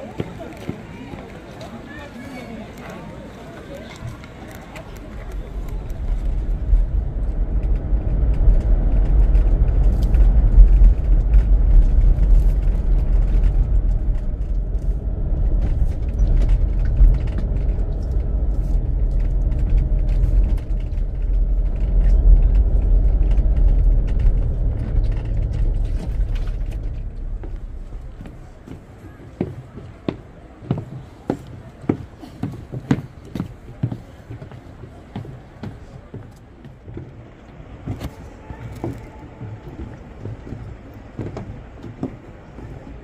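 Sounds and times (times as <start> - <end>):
car engine and tyre rumble: 3.2 - 31.8.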